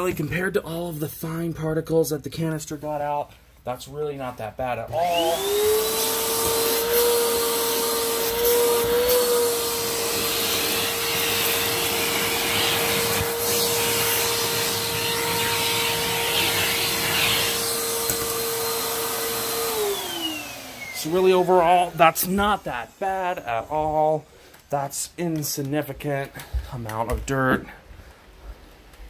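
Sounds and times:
vacuum cleaner running: 0:04.9 - 0:24.6.

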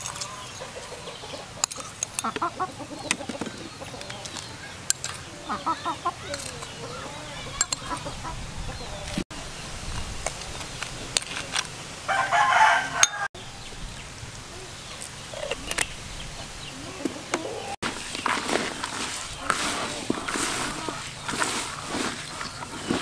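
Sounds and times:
chicken calling: 0:00.0 - 0:09.2, 0:19.2 - 0:23.0.

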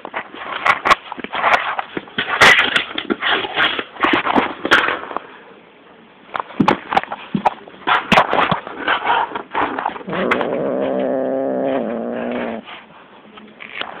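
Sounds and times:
cat growling: 0:09.9 - 0:12.7.

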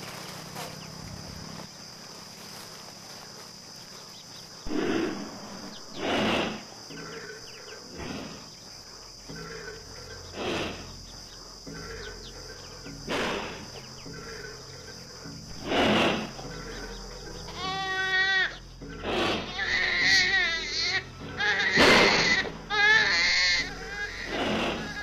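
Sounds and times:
crickets chirring: 0:00.0 - 0:25.0
loud rasping sound: 0:15.5 - 0:16.9, 0:17.5 - 0:25.0.

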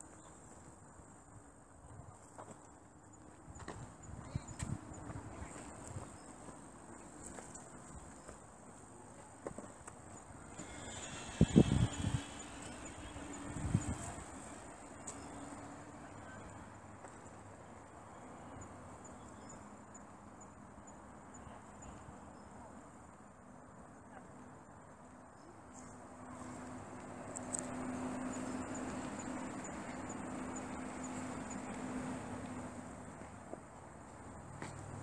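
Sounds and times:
insects chirping trill: 0:10.1 - 0:15.5, 0:27.4 - 0:32.7
broad rushing noise: 0:10.4 - 0:15.8.

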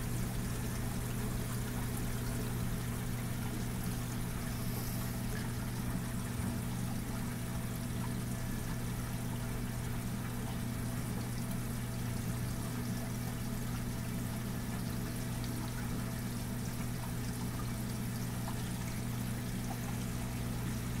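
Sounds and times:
aquarium water trickling: 0:00.0 - 0:21.0.

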